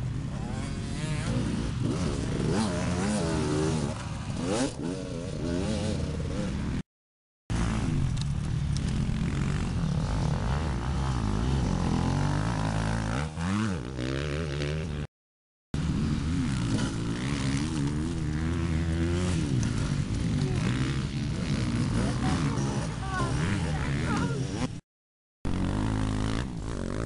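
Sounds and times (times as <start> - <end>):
dirt bike engines revving: 0.0 - 6.8, 7.5 - 15.1, 15.8 - 24.8, 25.5 - 27.0.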